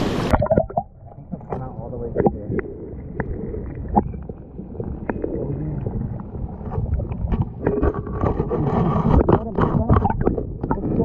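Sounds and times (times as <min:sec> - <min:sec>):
underwater water gurgle: 0:00.0 - 0:11.0
sharp underwater clicks and knocks: 0:06.6 - 0:11.0.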